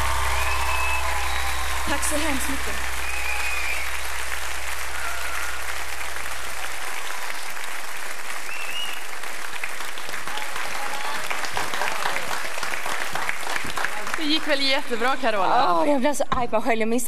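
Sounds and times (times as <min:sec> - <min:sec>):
low steady hum: 0:00.0 - 0:04.9
audience applauding: 0:00.0 - 0:15.7.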